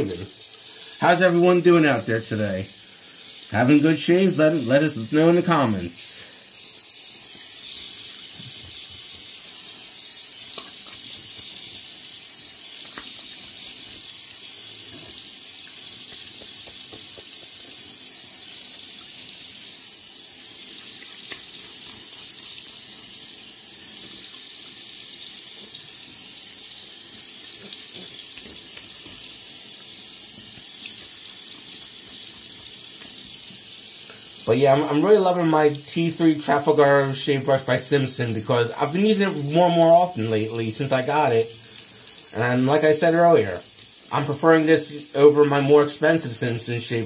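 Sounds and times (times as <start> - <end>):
faint ticks and splashes: 7.4 - 19.4, 20.6 - 23.0, 23.8 - 34.3
tap running into sink: 16.0 - 17.8.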